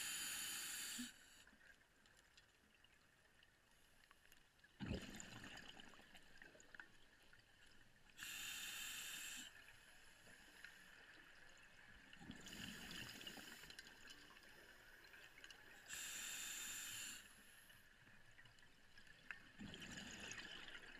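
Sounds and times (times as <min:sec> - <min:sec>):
faint steady hiss: 0:00.0 - 0:02.1, 0:08.0 - 0:19.3
exhaled bubbles underwater: 0:04.8 - 0:06.6, 0:19.5 - 0:20.9.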